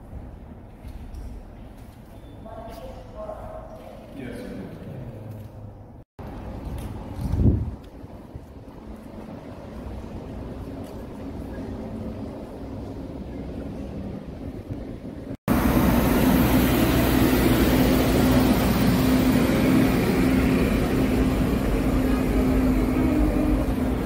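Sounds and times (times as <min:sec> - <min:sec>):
street ambience: 0:00.0 - 0:24.0
road train engine humming: 0:06.2 - 0:24.0.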